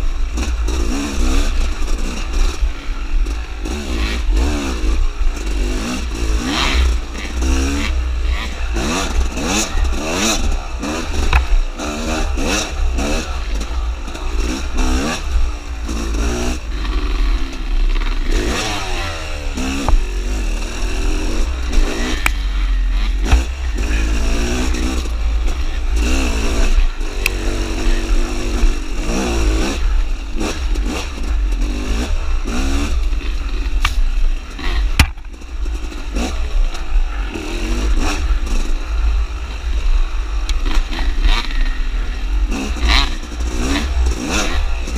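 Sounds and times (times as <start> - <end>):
dirt bike engine revving: 0.0 - 44.9
sharp knocks: 35.0 - 35.3.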